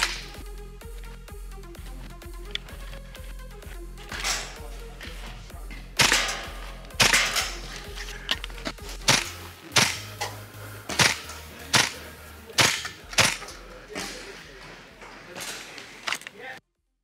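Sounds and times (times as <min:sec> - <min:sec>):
airsoft rifle shots: 0:00.0 - 0:00.4, 0:04.0 - 0:05.3, 0:06.0 - 0:14.3
background music with bass line: 0:00.0 - 0:14.0.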